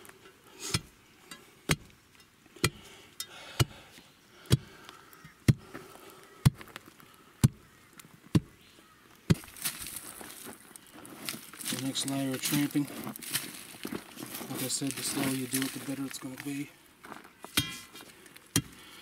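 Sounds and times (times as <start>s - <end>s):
steel bar pounding soil: 0.0s - 3.9s, 4.5s - 4.7s, 9.3s - 9.8s, 17.5s - 18.9s.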